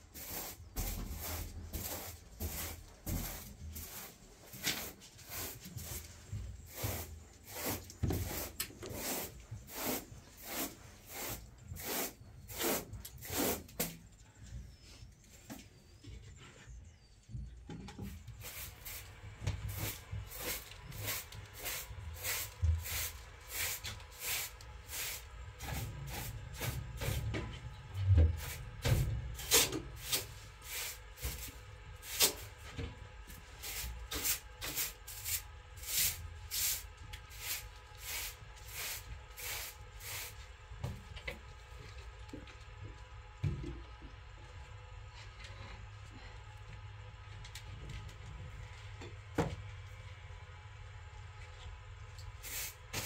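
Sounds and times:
broom sweeping a floor: 0.0 - 14.0, 18.0 - 41.1, 52.4 - 53.0.

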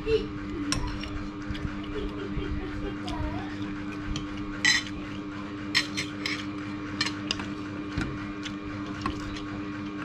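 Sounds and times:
steady low hum: 0.0 - 10.0
cutlery clinking on ceramic plate: 5.8 - 7.4.

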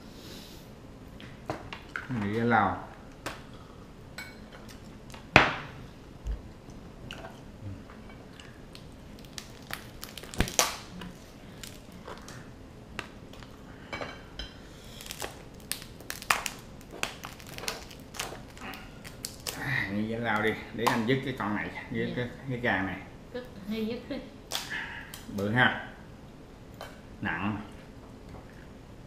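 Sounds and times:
crab shell cracking: 8.4 - 12.4, 15.0 - 19.7, 24.5 - 25.3.

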